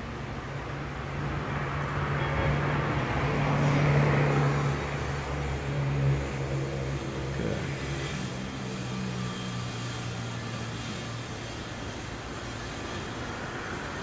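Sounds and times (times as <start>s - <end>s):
vehicle passing by: 1.3s - 12.0s.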